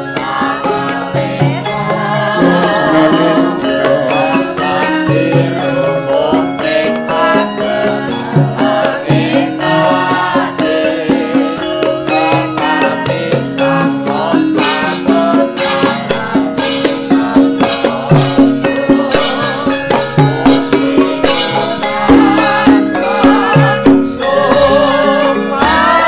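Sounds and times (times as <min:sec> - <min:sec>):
gamelan ensemble playing: 0:00.0 - 0:26.0
women singing with vibrato: 0:00.0 - 0:26.0.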